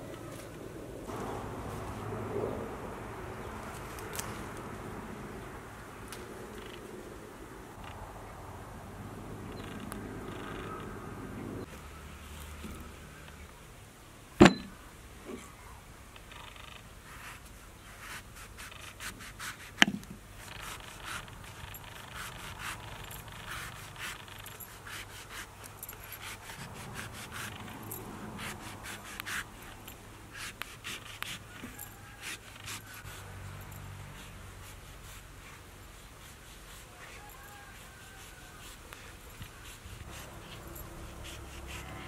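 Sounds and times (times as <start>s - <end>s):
knife scraping fruit peel: 17.1s - 33.3s, 34.2s - 42.0s.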